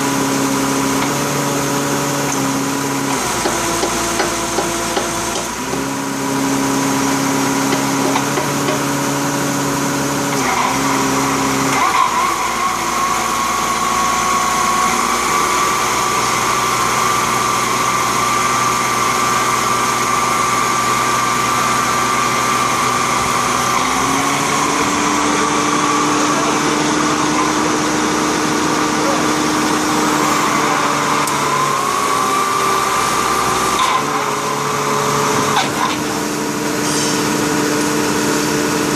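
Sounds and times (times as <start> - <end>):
drilling rig machine hum: 0.0 - 38.9.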